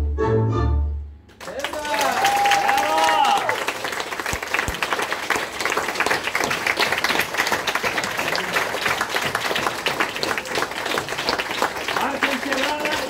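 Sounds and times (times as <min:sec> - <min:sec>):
audience applauding: 0:01.3 - 0:13.0
close hand clapping: 0:01.3 - 0:13.0.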